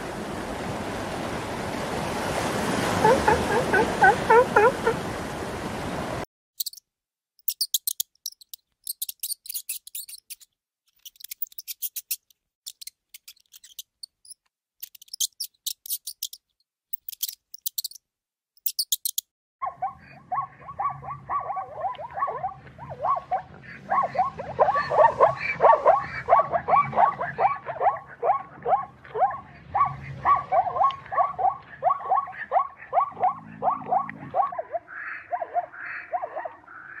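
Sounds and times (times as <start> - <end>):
zebras barking: 2.9 - 5.1, 19.6 - 37.0
ground squirrel clicking: 6.6 - 6.8, 7.4 - 10.4, 11.0 - 18.0, 18.6 - 19.2.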